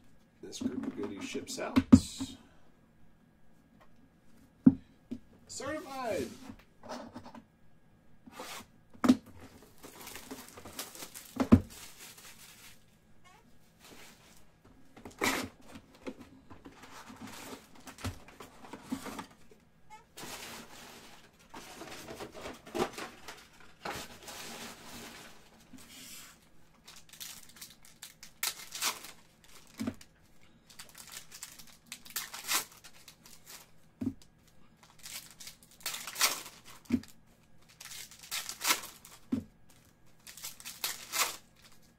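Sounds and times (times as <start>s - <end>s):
cards sliding and shuffling: 8.3s - 8.7s
foil wrappers tearing and crinkling: 9.5s - 12.8s, 26.7s - 30.1s, 30.7s - 33.7s, 34.8s - 41.9s.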